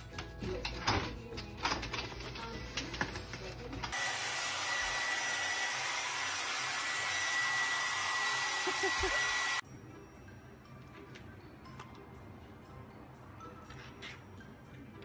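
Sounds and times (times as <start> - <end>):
hair dryer blowing with high whine: 3.9 - 9.6.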